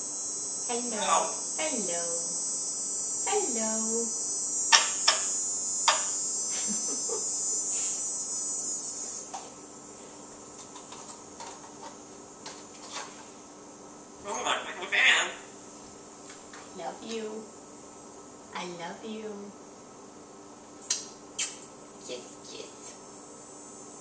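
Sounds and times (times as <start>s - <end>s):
high-pitched hiss: 0.0s - 11.2s
parrot vocalization: 14.2s - 15.5s.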